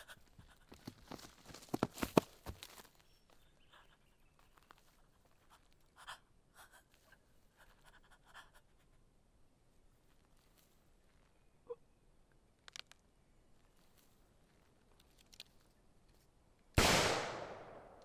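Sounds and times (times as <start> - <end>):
faint scratchy rustles: 9.7 - 11.4, 13.5 - 16.3.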